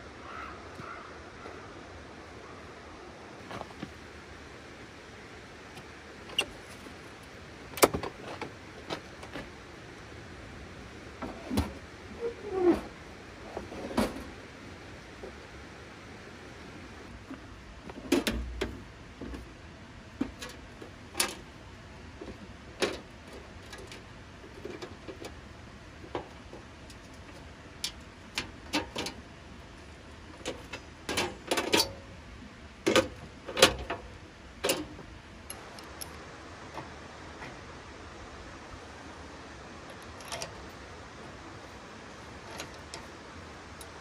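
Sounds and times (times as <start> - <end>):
metal clanks and knocks of camp stove: 17.9 - 19.4, 27.8 - 29.2, 30.4 - 32.0, 34.6 - 35.0.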